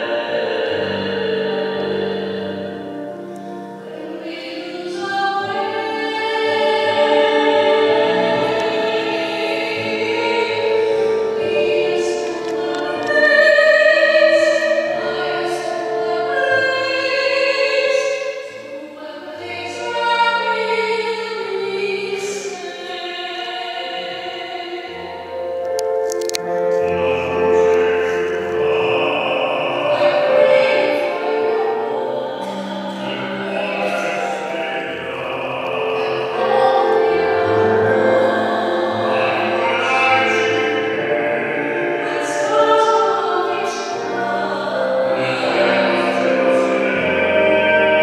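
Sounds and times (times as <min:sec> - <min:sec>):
man singing with vibrato: 0:00.0 - 0:03.0, 0:26.4 - 0:48.0
musical accompaniment: 0:00.0 - 0:48.0.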